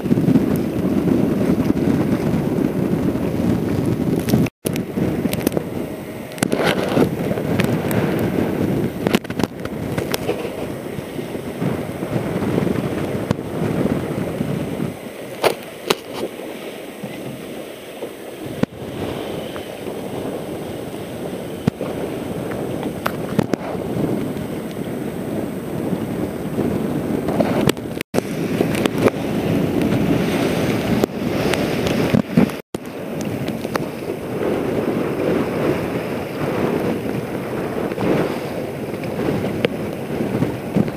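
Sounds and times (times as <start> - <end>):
wind buffeting microphone: 0.0 - 40.9
sharp pops and cracks: 9.0 - 10.5.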